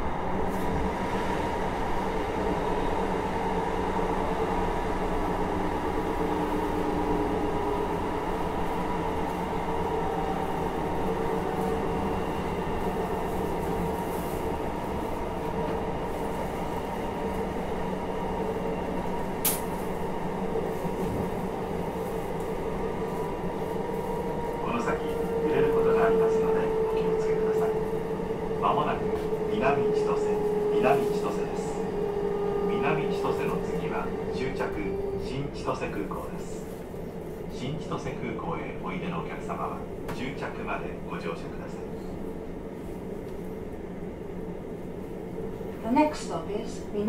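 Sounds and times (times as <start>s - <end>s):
train wheels rumbling on track: 0.0s - 47.0s
sharp click: 19.4s - 19.7s.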